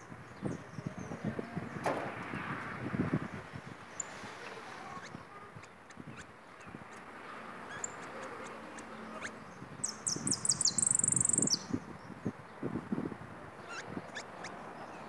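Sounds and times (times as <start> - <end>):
finch singing a fast trill: 7.7 - 11.7.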